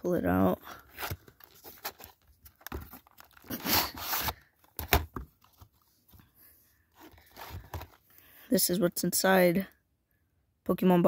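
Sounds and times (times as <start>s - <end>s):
packaging rustling and scraping: 0.7s - 6.2s, 6.9s - 8.0s.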